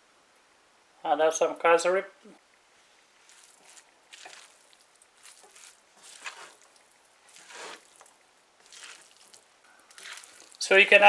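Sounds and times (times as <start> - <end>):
spatula scraping noodles in pan: 3.2 - 10.6.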